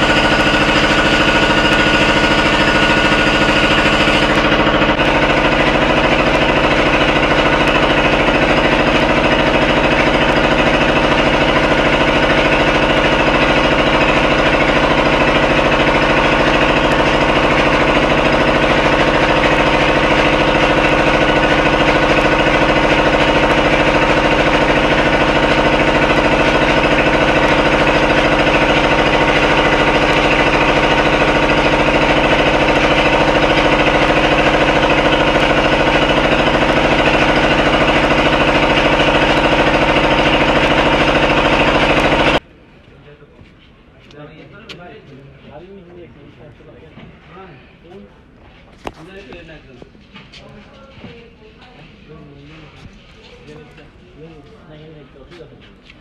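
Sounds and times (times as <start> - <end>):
engine running with knocking pulse: 0.0 - 42.4.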